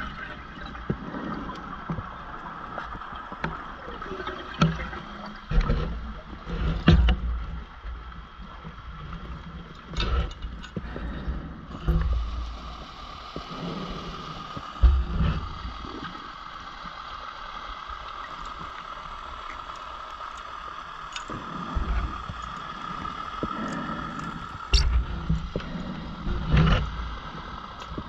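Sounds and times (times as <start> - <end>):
diver's exhaled bubbles rumbling: 10.8 - 16.4.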